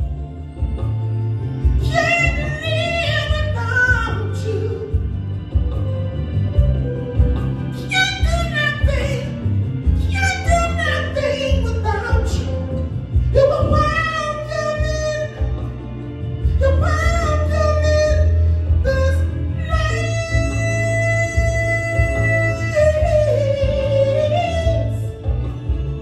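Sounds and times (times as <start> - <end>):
low instrumental accompaniment: 0.0 - 26.0
man singing into a microphone: 1.8 - 5.0, 7.7 - 15.6, 16.6 - 25.3.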